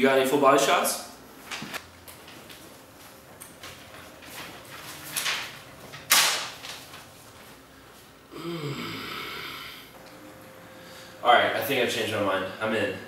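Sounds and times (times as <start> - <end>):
magazine pages flipping: 1.5 - 7.6
man humming breathily: 8.3 - 10.0.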